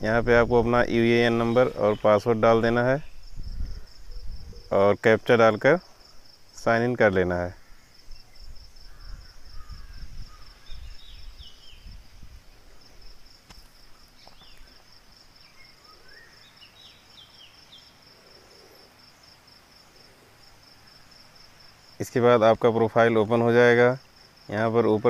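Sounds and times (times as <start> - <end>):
cricket chirping: 0.0 - 25.0.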